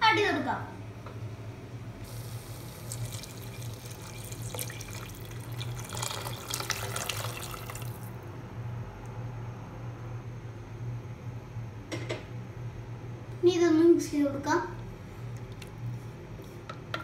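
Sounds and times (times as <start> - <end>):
hot water pouring into a pot: 2.1 - 8.2.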